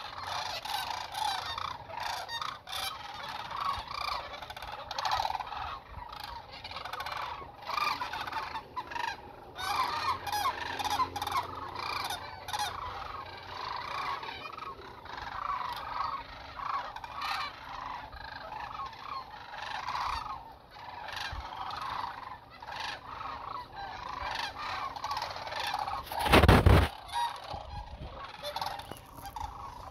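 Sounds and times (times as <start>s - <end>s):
cranes calling: 0.0s - 29.9s.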